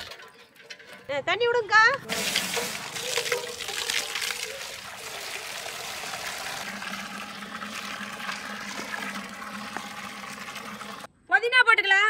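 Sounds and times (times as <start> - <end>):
water pouring and trickling: 2.0 - 11.1.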